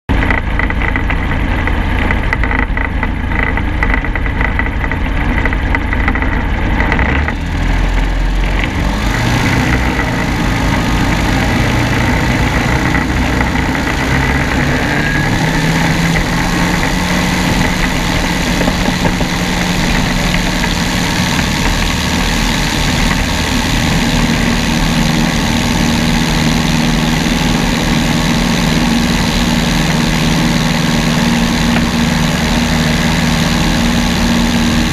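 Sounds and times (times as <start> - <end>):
propeller aircraft engine: 0.1 - 34.9.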